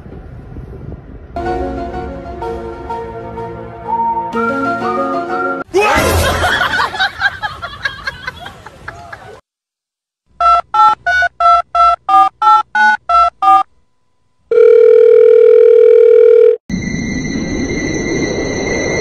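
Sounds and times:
steady telephone tone: 0:14.5 - 0:16.9.

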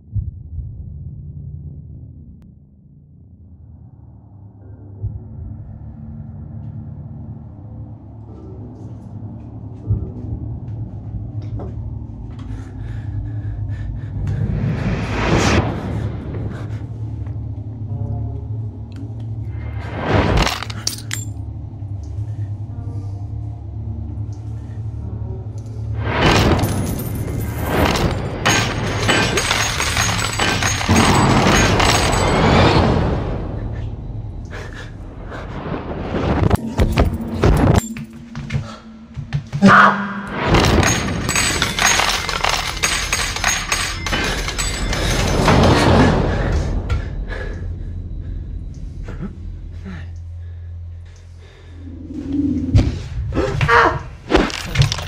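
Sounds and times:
music: 0:00.0 - 0:35.9, 0:36.5 - 0:52.2
low rumbling ambient drone: 0:00.0 - 0:55.0
coins clattering and clinking: 0:20.4 - 0:21.3, 0:26.3 - 0:32.4, 0:36.8 - 0:38.6, 0:40.5 - 0:45.9, 0:54.4 - 0:55.0.

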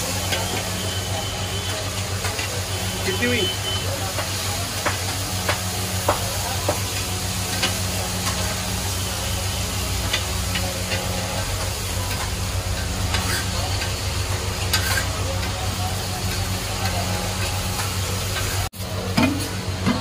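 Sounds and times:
burgers sizzling on a griddle: 0:00.0 - 0:20.0
metal spatula scraping griddle: 0:10.0 - 0:20.0.

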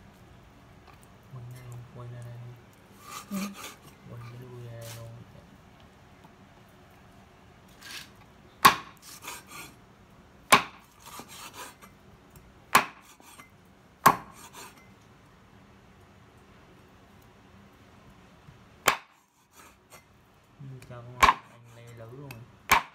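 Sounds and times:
knife chopping on wooden block: 0:08.6 - 0:09.7, 0:10.5 - 0:11.8, 0:12.7 - 0:13.4, 0:14.0 - 0:14.8, 0:18.9 - 0:19.6, 0:21.2 - 0:22.9.

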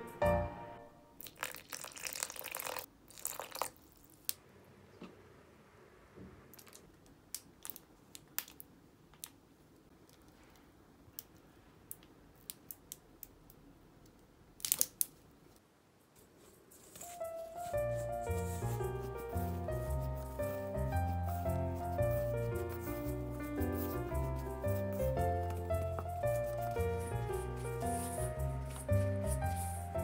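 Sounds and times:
water trickling onto dough: 0:01.2 - 0:04.4.

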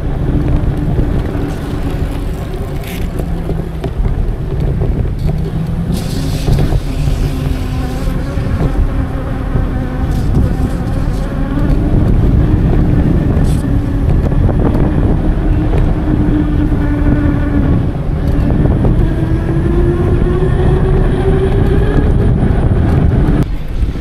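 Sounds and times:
electric bike motor humming: 0:00.0 - 0:24.0
wind rumble on microphone: 0:00.0 - 0:24.0.

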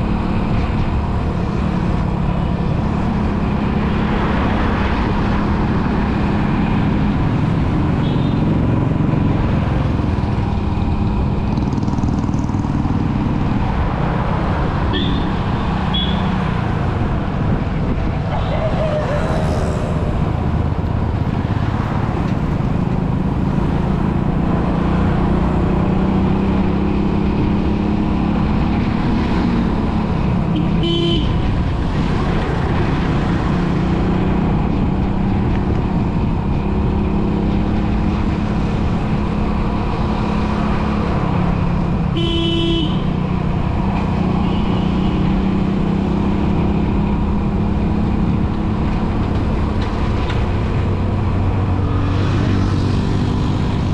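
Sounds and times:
road traffic hum: 0:00.0 - 0:53.9
vehicle horn honking: 0:15.0 - 0:15.3, 0:15.9 - 0:16.3, 0:30.6 - 0:31.4, 0:42.2 - 0:43.1.

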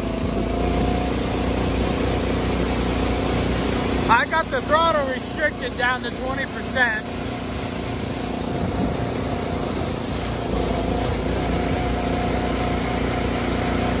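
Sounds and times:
golf cart running hum: 0:00.0 - 0:14.0
level whine: 0:03.9 - 0:14.0.

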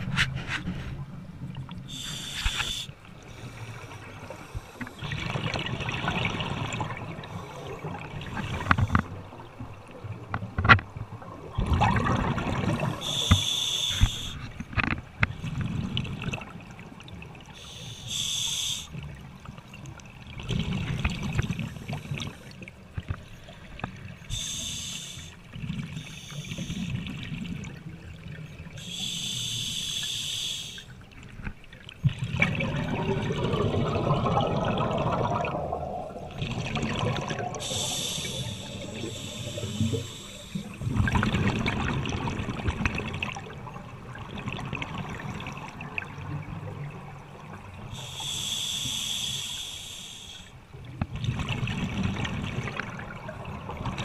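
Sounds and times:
exhaled air bubbling: 0:01.5 - 0:10.2, 0:11.1 - 0:14.5, 0:32.0 - 0:54.0
regulator inhalation hiss: 0:01.9 - 0:03.7, 0:13.0 - 0:14.4, 0:17.6 - 0:19.0, 0:24.3 - 0:25.4, 0:26.0 - 0:27.0, 0:28.8 - 0:30.9, 0:37.6 - 0:40.8, 0:47.9 - 0:50.6.

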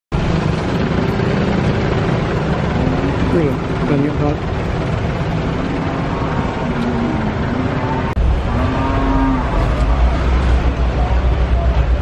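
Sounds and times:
deep rumble: 0:00.1 - 0:12.0
roadside vehicle noise: 0:00.1 - 0:12.0
faint voices: 0:09.4 - 0:12.0.

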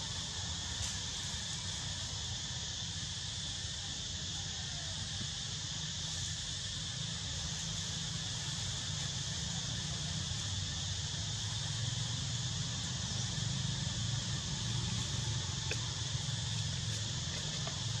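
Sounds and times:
insect chorus buzzing: 0:00.0 - 0:18.0
low steady rumble: 0:06.0 - 0:18.0.

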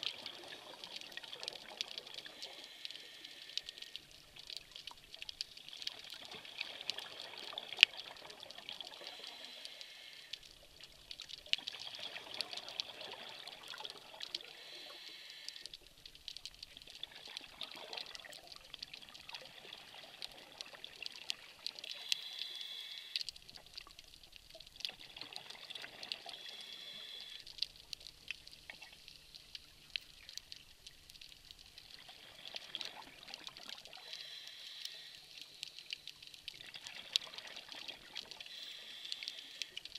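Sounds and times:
small clicks: 0:00.1 - 0:19.4, 0:20.1 - 0:39.9
exhaled bubbles underwater: 0:11.4 - 0:14.5, 0:24.5 - 0:27.2.

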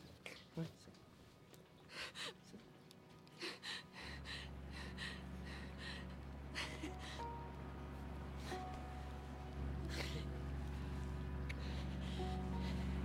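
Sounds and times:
boat engine drone: 0:03.4 - 0:13.0.

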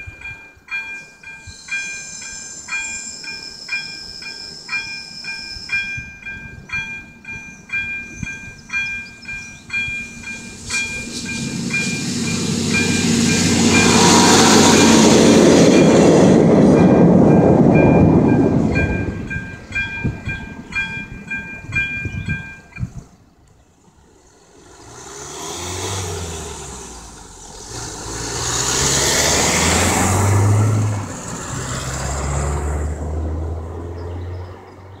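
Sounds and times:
diesel railbus passing: 0:00.0 - 0:35.0
vehicle engine pulling away: 0:09.9 - 0:18.3, 0:23.7 - 0:35.0.

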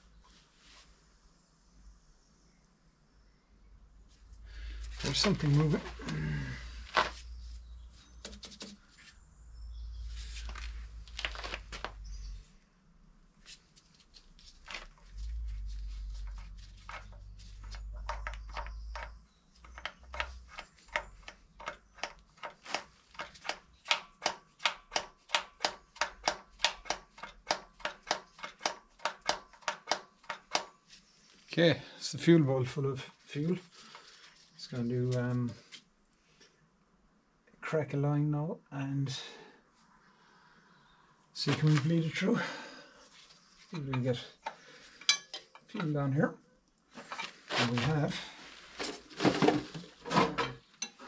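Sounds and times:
hand fuel pump clicking: 0:16.9 - 0:30.7.

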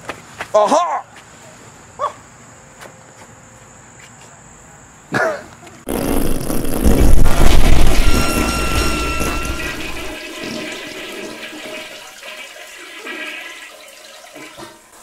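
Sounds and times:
toilet flushing: 0:07.9 - 0:15.0.

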